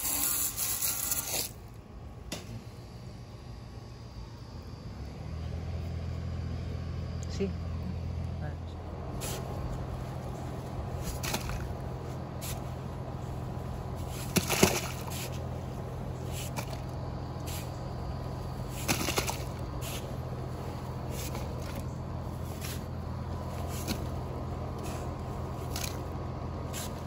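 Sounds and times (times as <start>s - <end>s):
steady low hum: 0.0s - 27.0s
spade scraping wet dirt: 9.1s - 17.9s, 18.6s - 27.0s.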